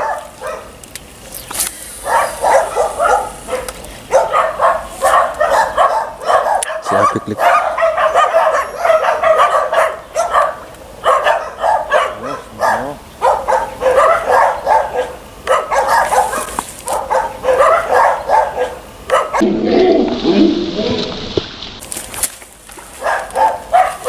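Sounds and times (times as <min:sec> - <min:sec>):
dog barking: 0:00.0 - 0:00.8, 0:02.0 - 0:19.6, 0:23.0 - 0:24.0
dull low sound: 0:19.4 - 0:21.8.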